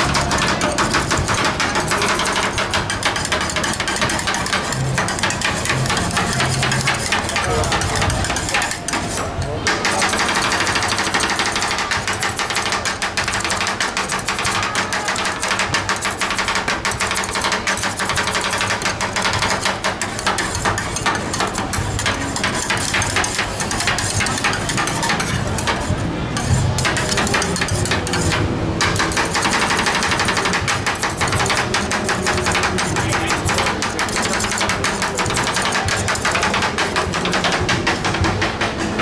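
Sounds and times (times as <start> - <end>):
fast clicking rattle: 26.4 - 38.2.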